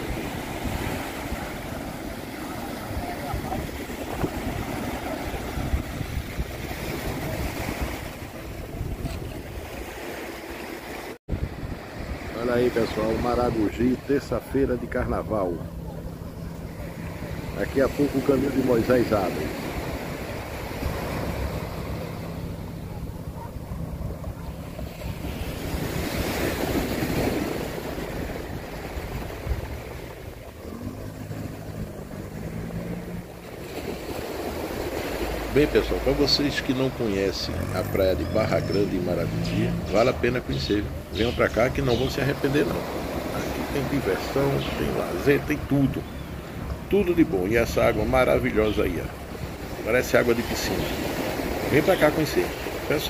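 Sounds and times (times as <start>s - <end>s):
wind buffeting microphone: 0.0s - 10.0s, 11.3s - 13.3s, 19.5s - 35.8s
small waves breaking on beach: 0.0s - 53.0s.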